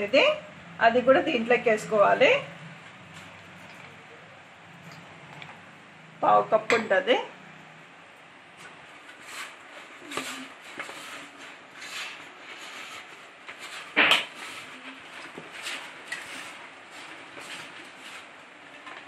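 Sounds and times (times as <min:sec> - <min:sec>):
dough scraping in metal pot: 0:08.7 - 0:18.8.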